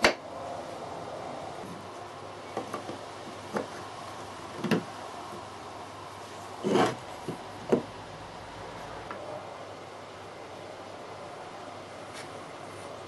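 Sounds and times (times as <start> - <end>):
wooden parts knocking on workbench: 4.6 - 4.9, 6.6 - 7.9.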